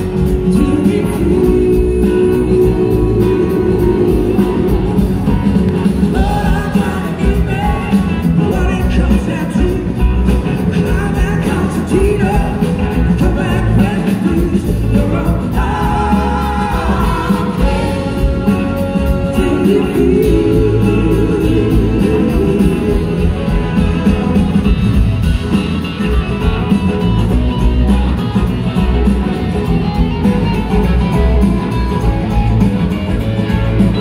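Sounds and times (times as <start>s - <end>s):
live blues-rock band: 0.0s - 34.0s
woman singing: 0.6s - 4.9s.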